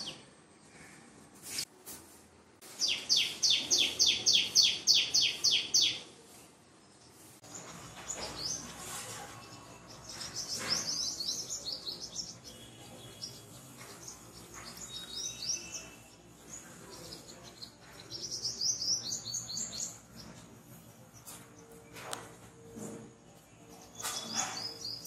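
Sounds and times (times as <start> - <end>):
small birds chirping: 2.6 - 22.6, 23.3 - 25.0.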